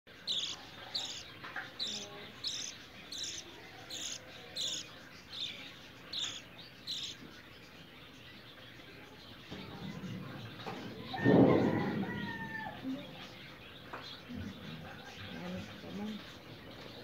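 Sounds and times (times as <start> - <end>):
bird chick begging chirps: 0.2 - 7.8.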